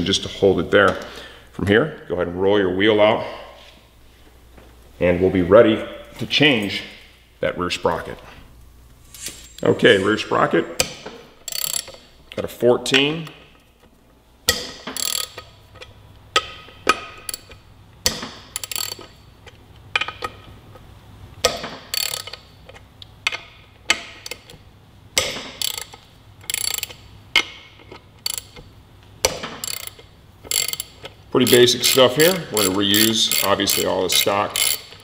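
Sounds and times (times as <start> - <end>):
hand ratchet clicking: 10.8 - 12.1, 14.5 - 20.4, 21.4 - 24.6, 25.2 - 35.0.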